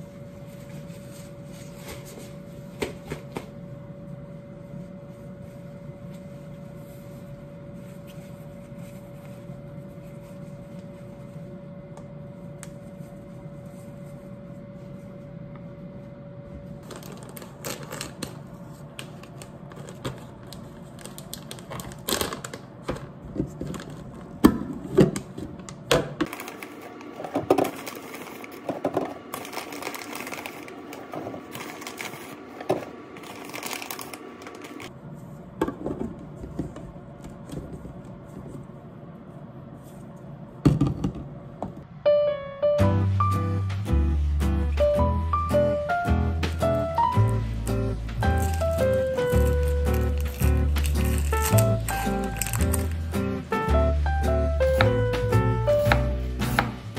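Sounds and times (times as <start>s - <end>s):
faint hum: 0.0s - 56.9s
tea bags rustling into canister: 16.8s - 18.4s, 26.3s - 34.9s, 47.3s - 53.1s
plastic wrap crinkling: 16.8s - 24.4s, 26.3s - 35.0s, 47.2s - 53.2s.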